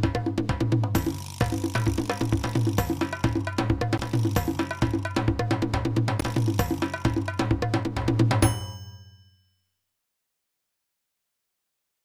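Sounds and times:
upbeat intro music: 0.1 - 8.6.

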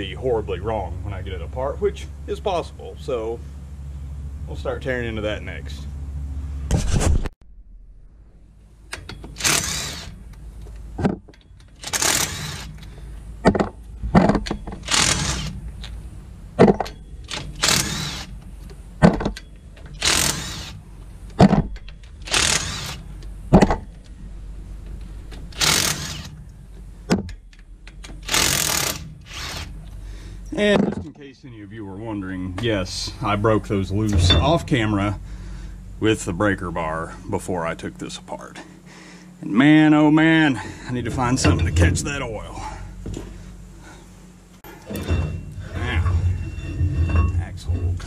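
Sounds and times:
thump: 6.7 - 7.3
hand ratchet clicking: 11.3 - 12.9, 19.8 - 20.8, 21.8 - 23.0, 25.5 - 26.4, 27.5 - 29.7.

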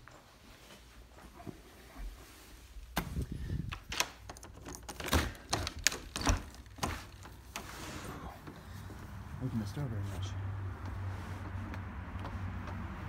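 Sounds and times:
door lock clicking and knocking: 3.7 - 7.6.

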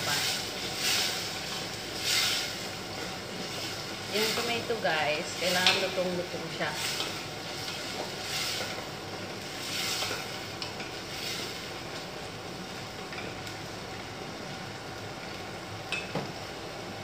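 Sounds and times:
food sizzling in oil: 0.0 - 17.0.

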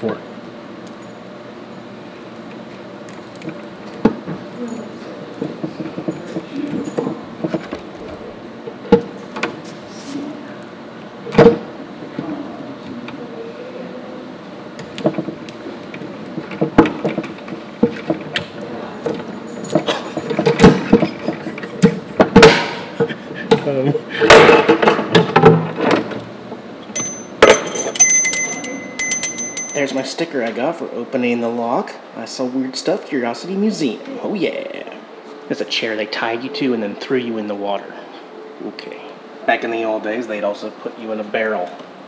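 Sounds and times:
padlock rattling: 27.0 - 30.0.

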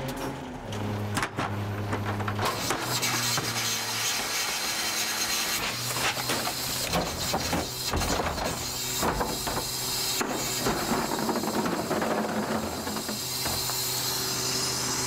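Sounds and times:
cart knocking and banging: 1.2 - 2.8, 6.0 - 13.8.

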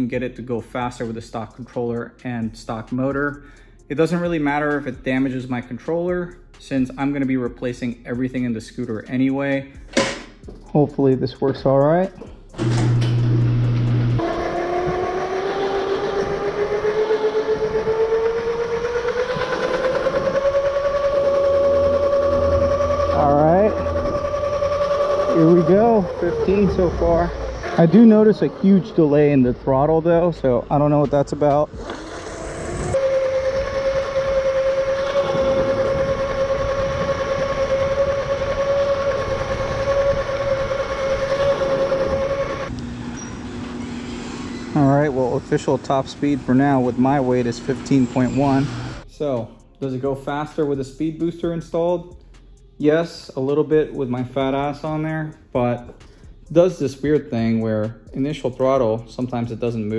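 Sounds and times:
electric scooter motor whining: 12.6 - 29.3, 31.7 - 49.0
wind and tyre noise: 14.2 - 42.8.

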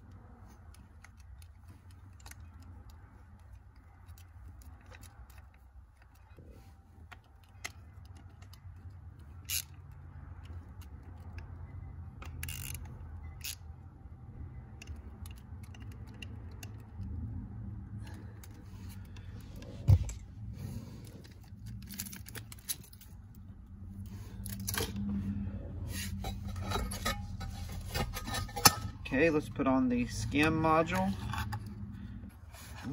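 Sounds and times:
plastic parts clicking and scraping: 0.0 - 13.8, 14.6 - 32.9
hand ratchet clicking: 7.3 - 11.5, 12.2 - 13.6.

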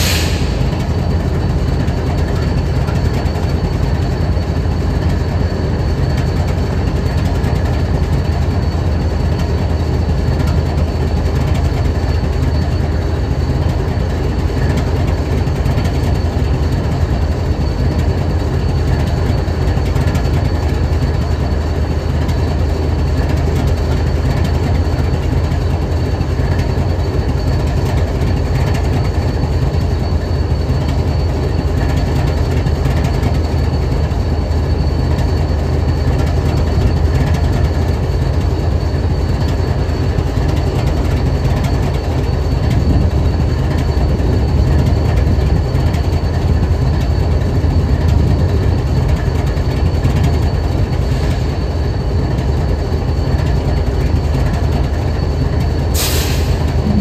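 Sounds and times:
locomotive idling: 0.0 - 57.0
high whine: 56.0 - 57.0.

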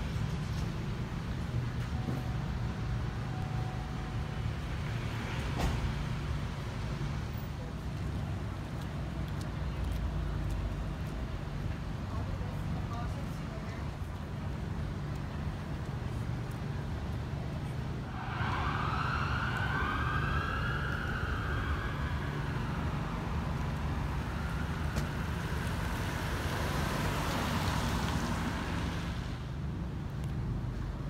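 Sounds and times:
emergency siren wailing: 18.1 - 26.5.

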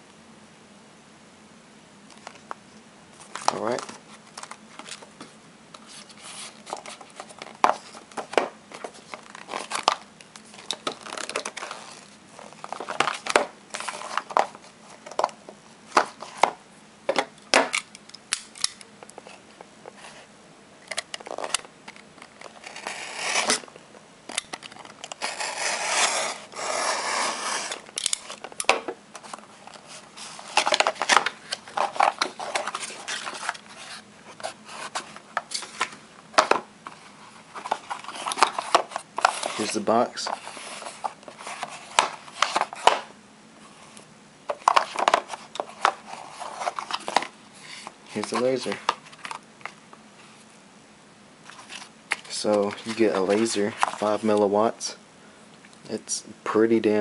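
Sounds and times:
paper packaging tearing and crumpling: 22.5 - 23.6, 25.0 - 28.4, 37.6 - 42.9.

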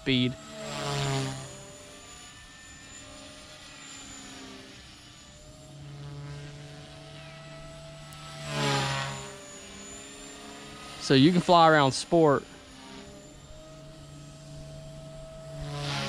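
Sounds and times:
rc helicopter rotor whine: 0.0 - 16.0.

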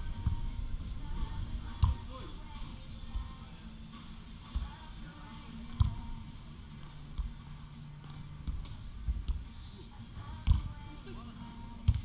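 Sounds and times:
ball being kicked thumps: 1.7 - 2.1, 4.5 - 4.9, 5.7 - 6.1, 8.0 - 9.5, 10.3 - 10.8, 11.8 - 12.0.

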